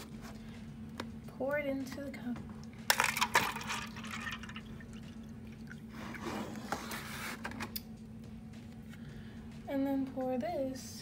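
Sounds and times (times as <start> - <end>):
water pouring into cup: 3.1 - 6.2.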